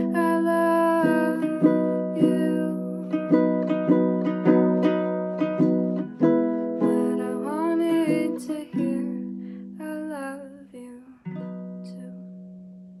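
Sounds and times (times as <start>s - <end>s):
woman singing: 0.0s - 3.5s, 6.8s - 12.3s
ukulele strummed: 0.0s - 10.4s.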